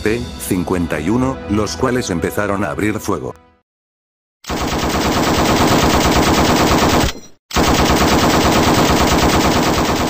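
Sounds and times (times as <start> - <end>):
rapid machine-gun fire: 4.4 - 10.0.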